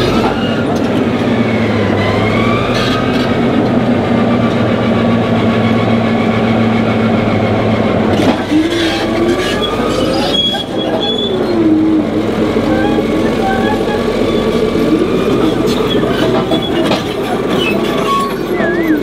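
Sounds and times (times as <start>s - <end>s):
bulldozer diesel engine running: 0.0s - 19.0s
steel tracks squealing: 8.1s - 19.0s.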